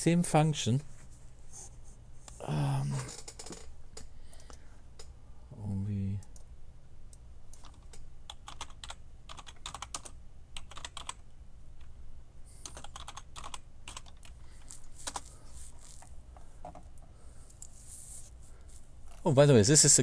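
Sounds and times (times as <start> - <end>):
keyboard typing clicks: 7.1 - 11.2, 12.6 - 14.4.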